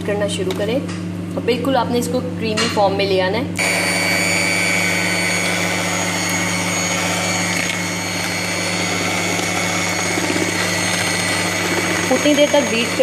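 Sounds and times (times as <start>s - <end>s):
electric hand mixer whisking: 3.6s - 13.0s.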